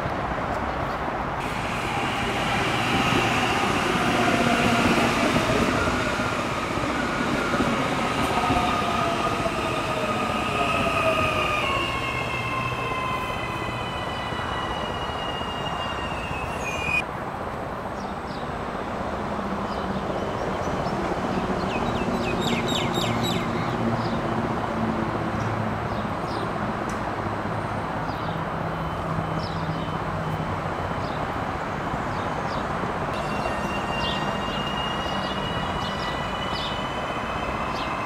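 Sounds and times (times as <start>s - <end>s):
standing train hum and rumble: 1.0s - 17.2s.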